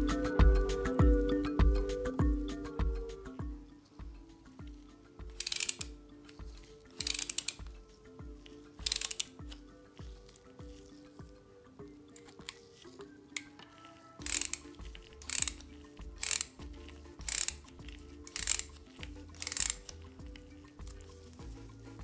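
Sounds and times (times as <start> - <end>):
ratchet screwdriver clicking: 5.3 - 6.0, 7.0 - 7.8, 8.8 - 9.4, 14.2 - 21.0.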